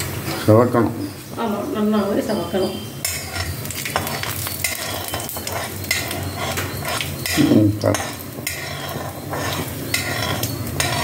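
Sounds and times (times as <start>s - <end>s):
lentils sizzling in hot oil: 0.0s - 11.0s
metal spatula scraping a pan: 2.3s - 11.0s.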